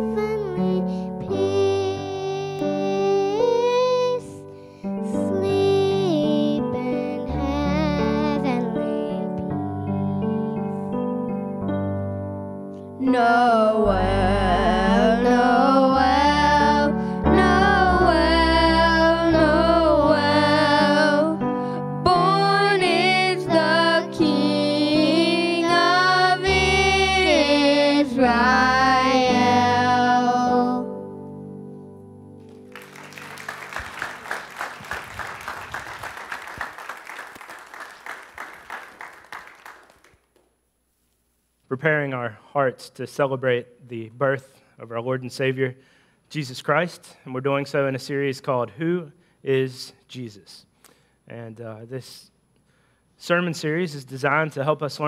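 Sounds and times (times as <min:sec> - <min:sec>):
person singing: 0:00.0 - 0:10.9, 0:13.0 - 0:31.0
piano accompaniment: 0:00.0 - 0:36.9
applause: 0:32.4 - 0:40.3.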